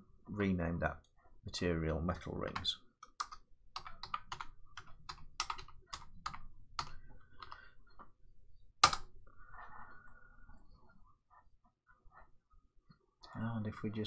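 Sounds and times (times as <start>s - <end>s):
typing on computer keyboard: 2.5s - 7.6s.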